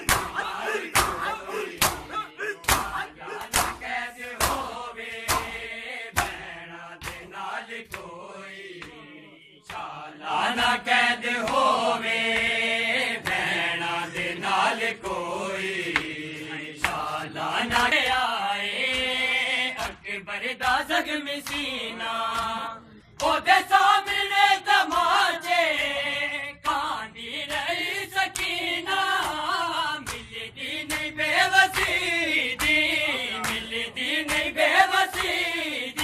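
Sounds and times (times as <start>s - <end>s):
hands slapping bare chests: 0.0s - 8.2s, 15.9s - 16.2s, 16.8s - 17.1s, 29.2s - 36.0s
men chanting a lament: 0.0s - 36.0s.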